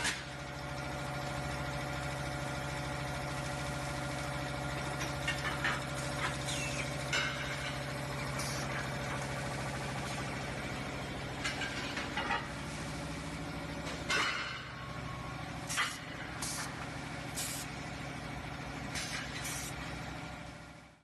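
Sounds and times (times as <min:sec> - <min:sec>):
steady machine hum: 0:00.0 - 0:21.0
sharp air hisses: 0:17.4 - 0:17.7, 0:19.0 - 0:19.8.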